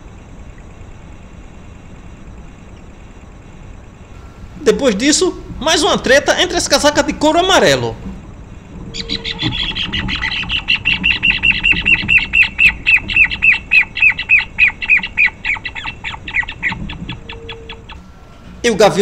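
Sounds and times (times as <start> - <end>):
birds making sharp calls: 8.7 - 18.5.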